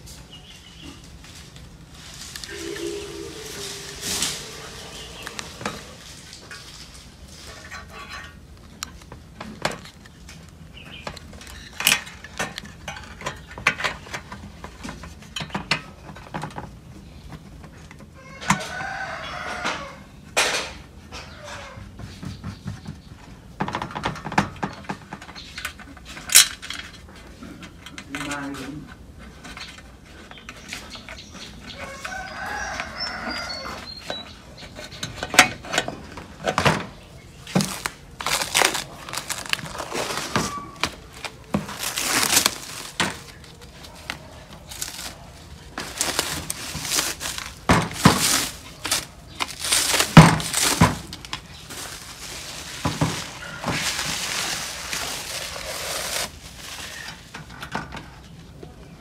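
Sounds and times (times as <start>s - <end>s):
rooster crowing: 2.5s - 6.5s, 18.2s - 20.2s, 31.8s - 34.0s
plastic film peeling and crackling: 37.4s - 57.3s.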